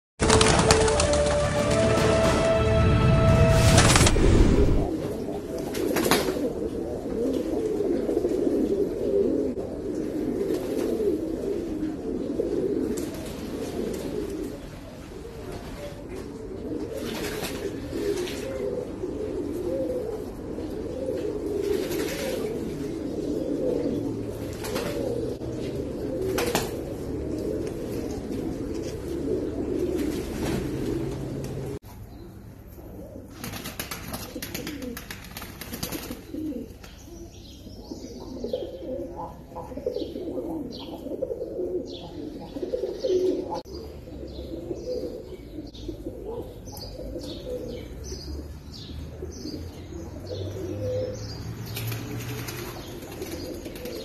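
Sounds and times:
wings splashing water: 0.2s - 2.6s
pigeons cooing: 4.8s - 31.9s, 32.6s - 54.0s.

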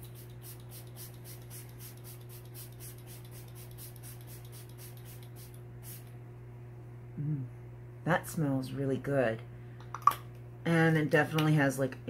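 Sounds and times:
spray bottle hisses: 0.0s - 6.1s
low fan hum: 0.0s - 12.0s.

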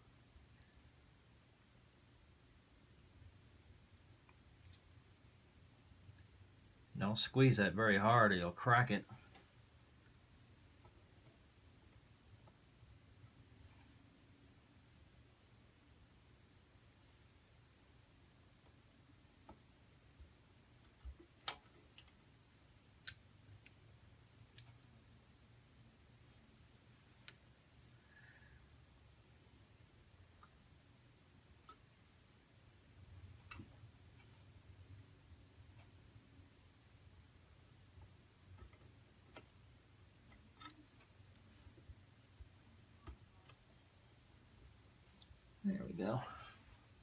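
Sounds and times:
faint clicks of pliers on parts: 40.2s - 41.8s.

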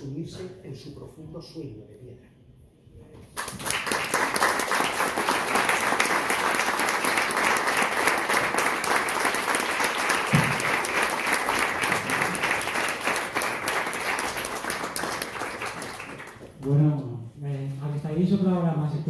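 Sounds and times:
audience applauding: 3.4s - 16.6s.

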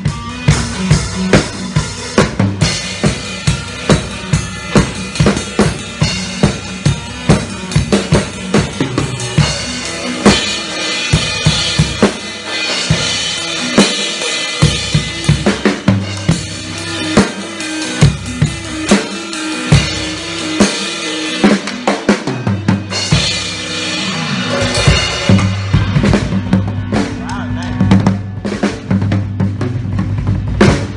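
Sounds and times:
drum kit played hard: 0.0s - 30.9s
electric guitar sustained notes: 0.0s - 30.9s.

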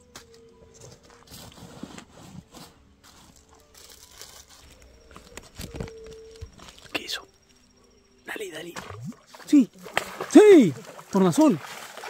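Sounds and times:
rustling and crinkling handling: 0.0s - 7.6s
faint steady hum: 0.0s - 12.0s.

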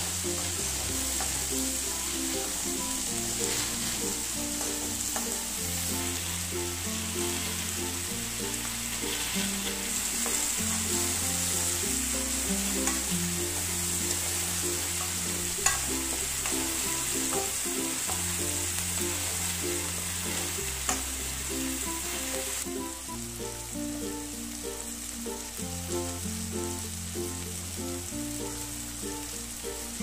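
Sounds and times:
background music with held notes: 0.0s - 30.0s
vegetables sizzling in hot oil: 0.0s - 30.0s
spoon scraping and clicking on pan: 15.0s - 16.7s.

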